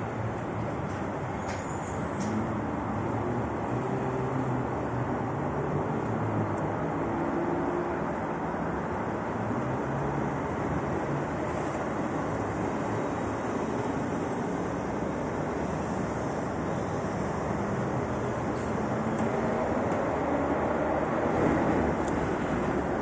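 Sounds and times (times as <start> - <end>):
road traffic below: 0.0 - 23.0
cable car cabin rumble: 12.6 - 23.0.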